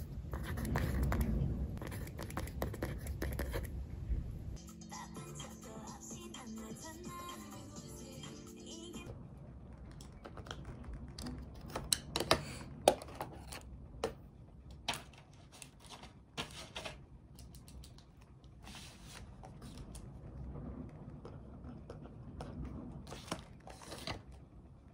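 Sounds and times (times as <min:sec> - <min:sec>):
pen writing on paper: 0:00.4 - 0:03.7, 0:21.2 - 0:22.6
background music: 0:04.6 - 0:09.1.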